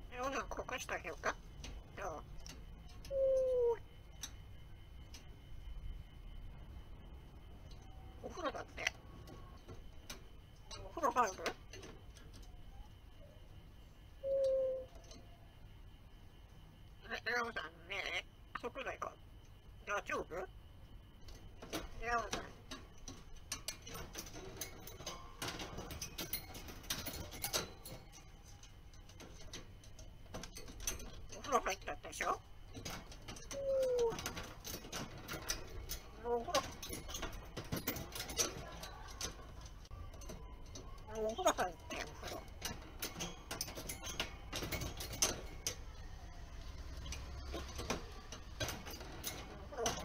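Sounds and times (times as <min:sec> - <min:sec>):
parrot clicking and tapping in cage: 0:21.2 - 0:50.0.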